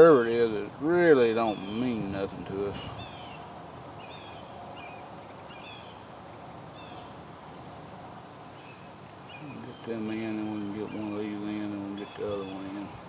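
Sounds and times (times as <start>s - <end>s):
bird chirps: 1.4s - 6.1s, 6.7s - 7.2s, 8.5s - 13.0s.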